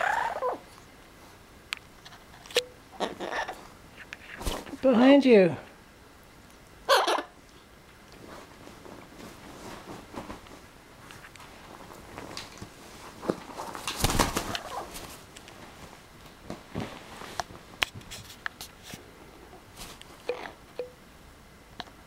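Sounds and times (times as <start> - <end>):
parrot short low calls: 6.9 - 7.4
parrot scuffling on bedding: 8.2 - 19.0.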